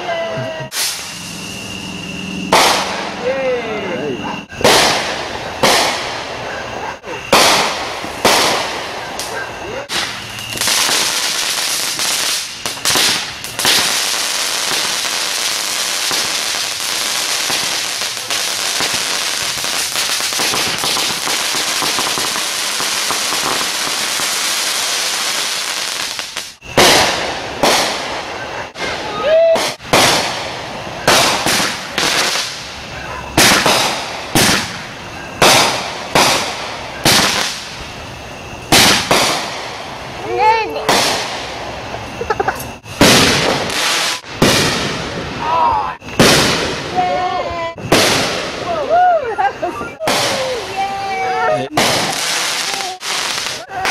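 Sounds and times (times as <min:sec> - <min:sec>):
firework whistle: 0:00.0 - 0:47.1
fireworks fountain hissing and crackling: 0:00.0 - 0:53.9
firework bangs echoing: 0:00.7 - 0:41.9, 0:42.7 - 0:47.2, 0:47.8 - 0:48.8, 0:49.7 - 0:53.9
firework pops: 0:02.5 - 0:03.0, 0:07.2 - 0:13.9, 0:25.9 - 0:28.0, 0:29.5 - 0:32.7, 0:33.4 - 0:37.7, 0:38.7 - 0:39.7.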